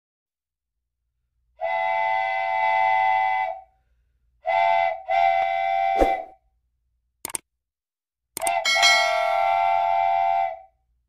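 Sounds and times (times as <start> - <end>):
train horn blasts: 1.6 - 3.6, 4.4 - 6.2, 8.7 - 10.7.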